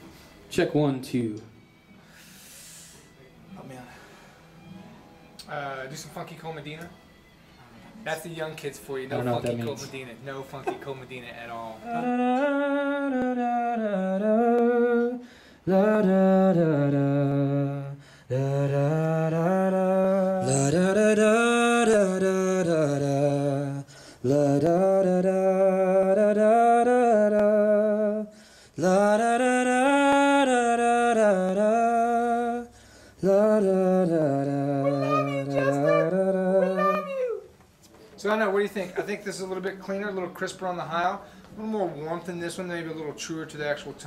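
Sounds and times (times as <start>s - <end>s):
man singing wordless melody: 11.5s - 37.5s.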